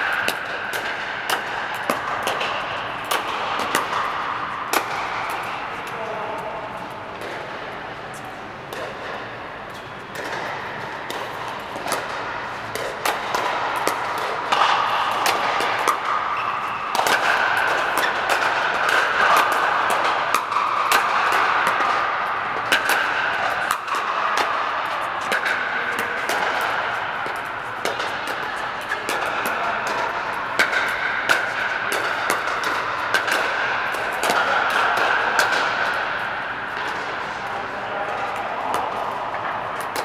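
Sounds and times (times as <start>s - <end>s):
paddles hitting plastic balls: 0.0s - 6.0s, 10.1s - 37.2s.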